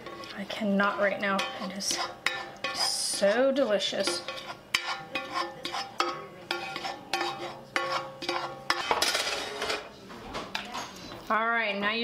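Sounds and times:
spatula scraping a skillet: 0:00.0 - 0:09.9.

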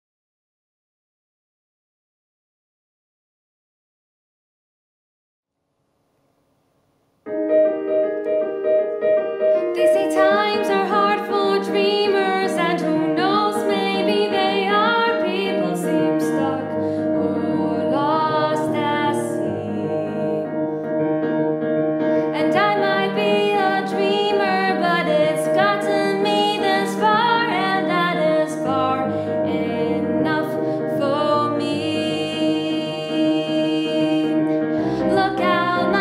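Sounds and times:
piano chords: 0:07.2 - 0:36.0
woman singing: 0:09.6 - 0:20.7, 0:22.2 - 0:36.0.

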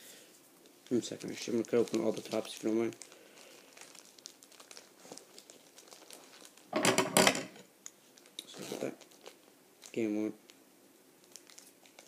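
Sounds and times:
foil wrappers crinkling: 0:00.8 - 0:06.8, 0:08.2 - 0:10.6, 0:11.2 - 0:12.0.

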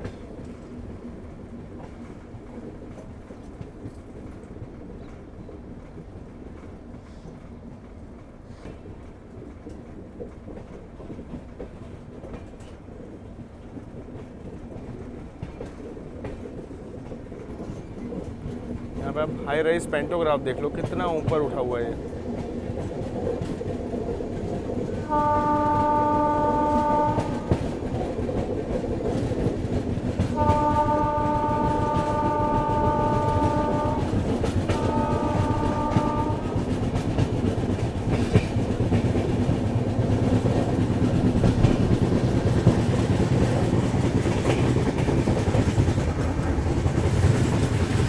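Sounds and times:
train wheels rumbling on rails: 0:00.0 - 0:48.0
locomotive horn: 0:25.0 - 0:27.7, 0:30.4 - 0:36.7.

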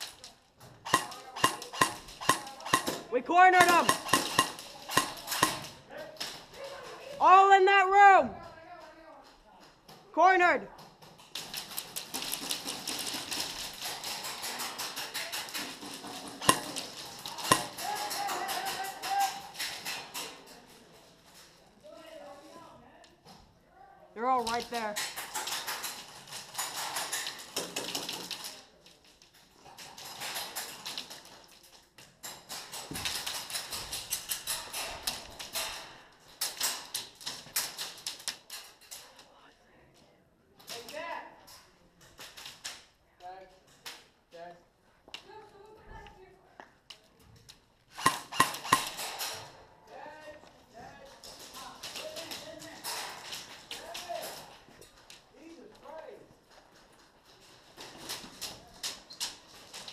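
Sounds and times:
pellets rattling off plywood: 0:00.0 - 0:06.5, 0:11.0 - 0:20.4, 0:24.4 - 0:38.6
airsoft guns firing: 0:00.8 - 0:05.8, 0:12.2 - 0:19.5, 0:47.9 - 0:49.5.

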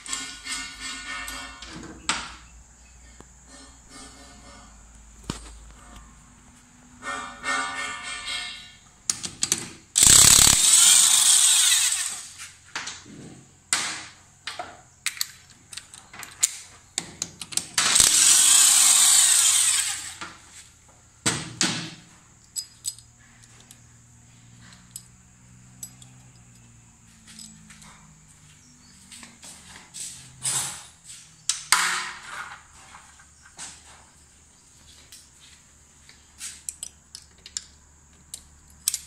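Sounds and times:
tools and metal parts clicking: 0:00.0 - 0:01.8, 0:07.6 - 0:12.3, 0:14.4 - 0:20.3, 0:22.3 - 0:28.2, 0:36.4 - 0:39.0
electric impact wrench bursts: 0:09.9 - 0:12.5, 0:17.8 - 0:20.4.

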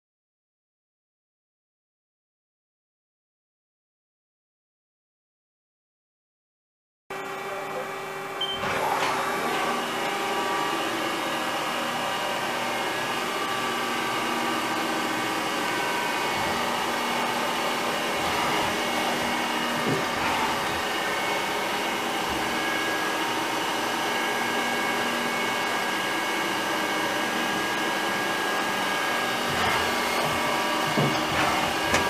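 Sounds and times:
lathe whirring and whining: 0:07.1 - 0:32.0.

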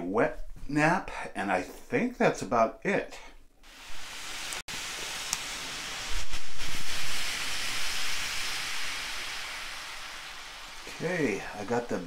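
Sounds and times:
ration heater hissing: 0:03.6 - 0:12.0.

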